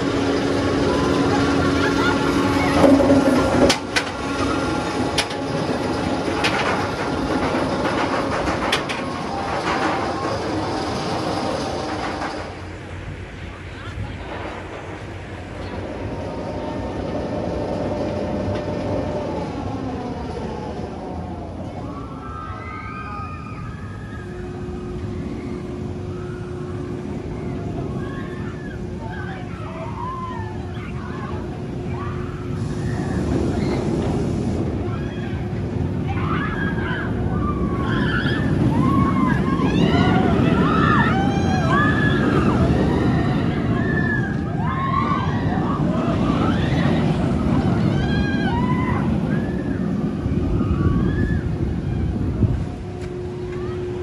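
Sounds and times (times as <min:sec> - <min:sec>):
constant hum: 0:00.0 - 0:54.0
roller coaster chain lift rumble: 0:00.0 - 0:54.0.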